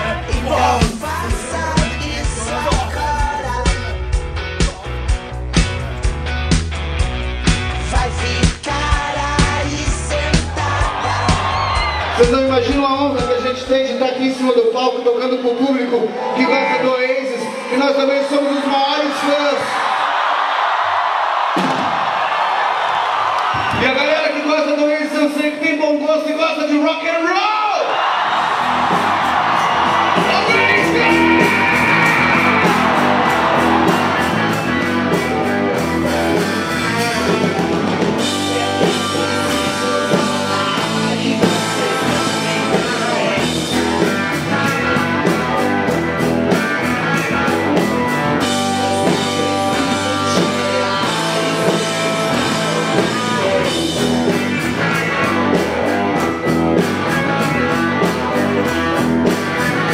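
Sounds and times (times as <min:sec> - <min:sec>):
person singing: 0:00.0 - 0:04.0, 0:07.8 - 0:12.0, 0:36.9 - 0:44.2, 0:48.6 - 0:54.0
crowd noise: 0:00.0 - 0:59.9
electric guitar: 0:28.3 - 0:59.9.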